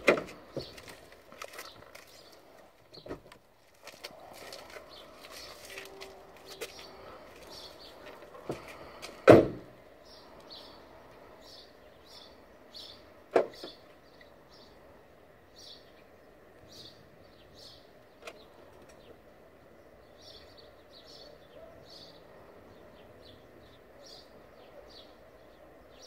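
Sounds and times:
small birds chirping: 0:00.3 - 0:09.2, 0:09.8 - 0:26.0
car door slamming: 0:09.2 - 0:09.8.

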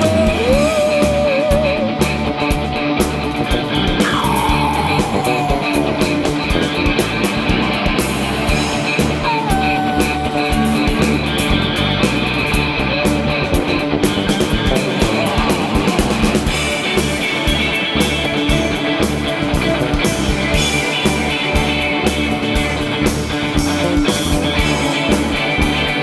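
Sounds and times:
live rock band playing: 0:00.0 - 0:26.0
sliding lead guitar line: 0:00.0 - 0:26.0.

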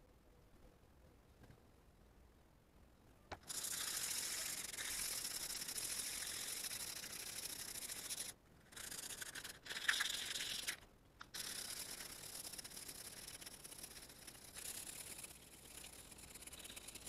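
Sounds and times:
hand sanding metal: 0:03.5 - 0:17.0.

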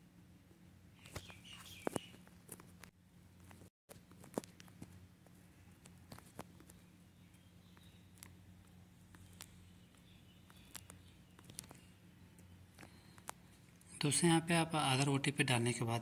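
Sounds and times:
faint low hum: 0:00.0 - 0:16.0
faint clicks: 0:07.7 - 0:13.4.

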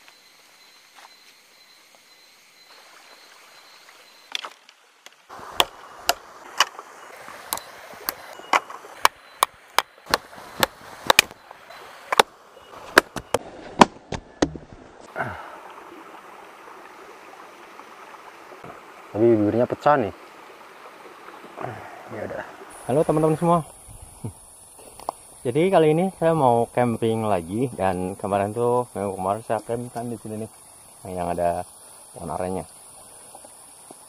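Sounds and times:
stream rushing: 0:02.7 - 0:23.7
axe chopping wood: 0:05.5 - 0:06.8, 0:08.6 - 0:11.4, 0:12.9 - 0:14.7.

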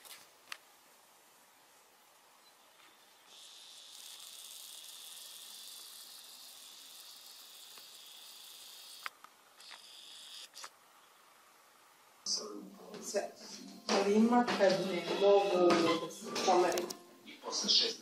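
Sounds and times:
camcorder zoom motor whirring: 0:02.5 - 0:10.8.

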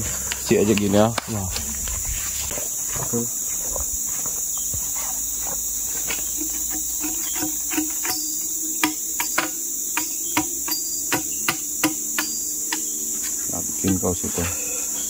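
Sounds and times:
high-pitched insect chorus: 0:00.0 - 0:15.0
machete striking a log: 0:06.4 - 0:12.9.

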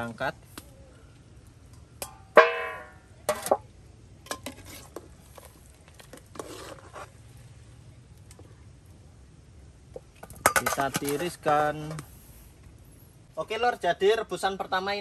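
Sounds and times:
metal skimmer clanging on pot: 0:02.0 - 0:03.6
metal scrape: 0:04.3 - 0:05.0, 0:06.1 - 0:07.2.

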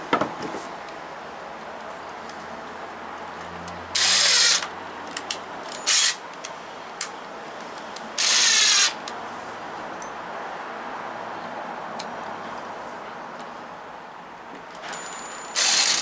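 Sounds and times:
impact driver driving screws: 0:04.0 - 0:04.7, 0:05.7 - 0:06.2, 0:08.2 - 0:09.0, 0:15.6 - 0:16.0
screws clicking: 0:04.0 - 0:06.2, 0:08.2 - 0:09.0, 0:15.5 - 0:16.0.

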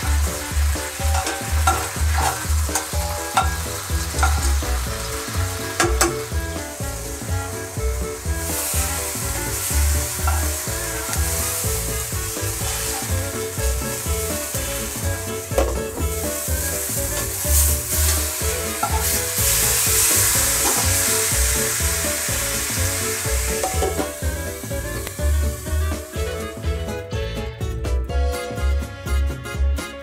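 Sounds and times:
mushrooms sizzling in oil: 0:00.0 - 0:27.1
glass lid clinking: 0:23.6 - 0:24.1.

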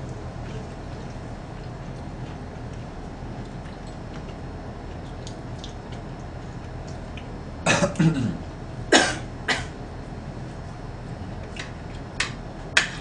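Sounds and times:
woman coughing: 0:07.7 - 0:09.8.

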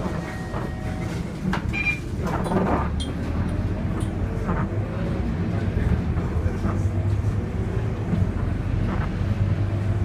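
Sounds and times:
bus body clicks and rattles: 0:00.0 - 0:04.8
bus diesel engine drone: 0:00.0 - 0:10.0.

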